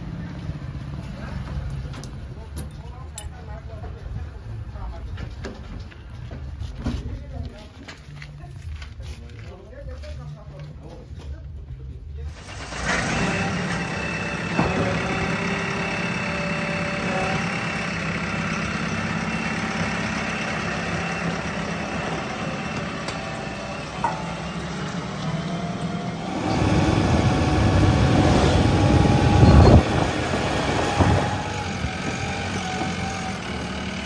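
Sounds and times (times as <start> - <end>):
diesel engine idling: 12.3 - 34.0.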